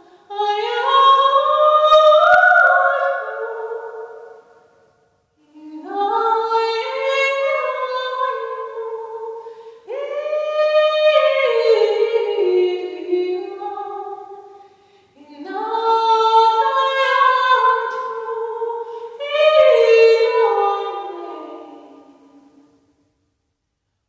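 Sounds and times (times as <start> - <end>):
woman singing unaccompanied: 0.0 - 4.4, 5.4 - 14.6, 15.2 - 22.6.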